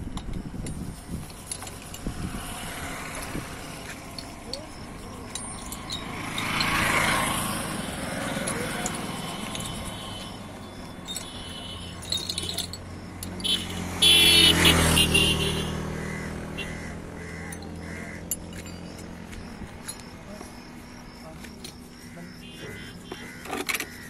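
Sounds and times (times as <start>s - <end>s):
road traffic passing: 0.0s - 24.0s
metal hand tools clinking: 0.1s - 15.0s, 17.4s - 22.1s, 22.8s - 24.0s
vehicle horn blast: 13.4s - 15.8s.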